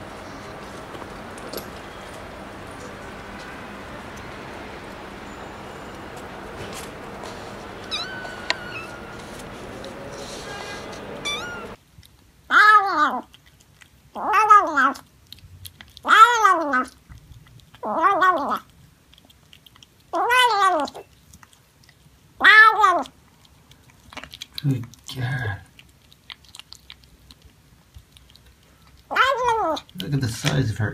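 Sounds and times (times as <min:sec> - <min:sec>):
cat meowing: 0:04.8 - 0:11.8, 0:16.0 - 0:16.9, 0:17.8 - 0:18.6, 0:20.1 - 0:21.0, 0:22.4 - 0:23.1, 0:29.1 - 0:29.9.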